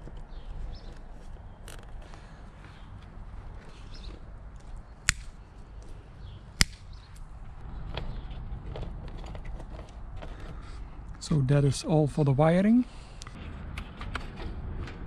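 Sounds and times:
sharp clicks: 5.0s - 5.4s, 6.6s - 7.3s.

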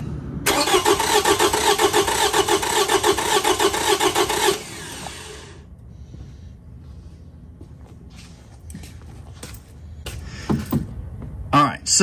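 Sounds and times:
car engine cranking unevenly: 0.5s - 5.1s.

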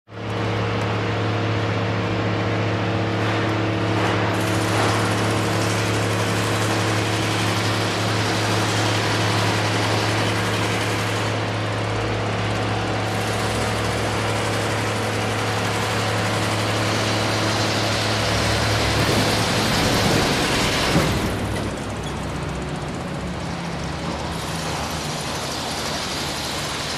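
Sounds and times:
generator engine drone: 0.1s - 26.9s.

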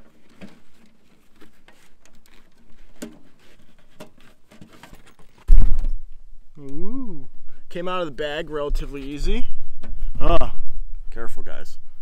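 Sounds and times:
light scrapes and clicks: 0.0s - 5.9s.

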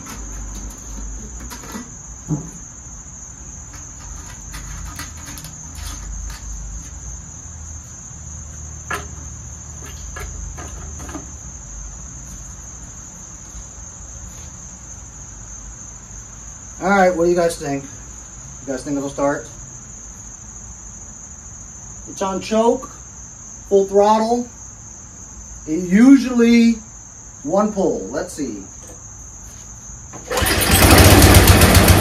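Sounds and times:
crickets trilling: 0.0s - 32.0s.

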